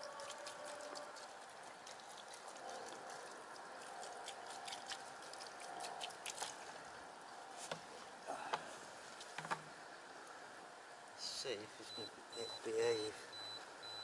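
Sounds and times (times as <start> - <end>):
water pouring from a plastic bottle: 0.0 - 6.8.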